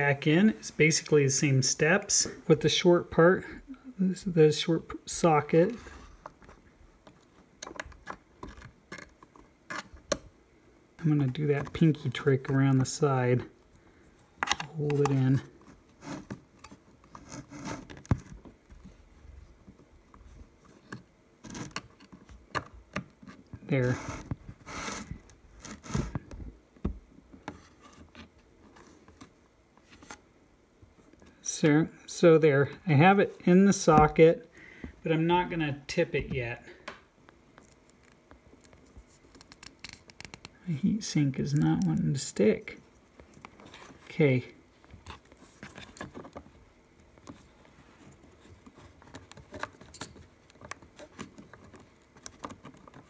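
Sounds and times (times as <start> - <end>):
small clicks and scrapes: 5.8 - 10.2, 14.4 - 19.0, 19.6 - 26.4, 27.4 - 30.2, 37.2 - 40.6, 44.8 - 53.0.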